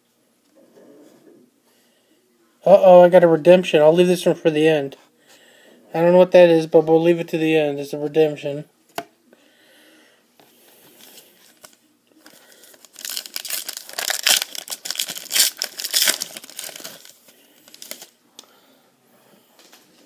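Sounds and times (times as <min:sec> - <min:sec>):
foil pack tearing and crinkling: 0:12.6 - 0:18.1.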